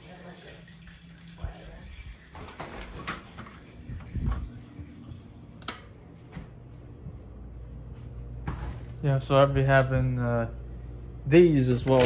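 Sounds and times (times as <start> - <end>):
door opening: 2.3 - 4.6
footsteps: 3.8 - 10.1.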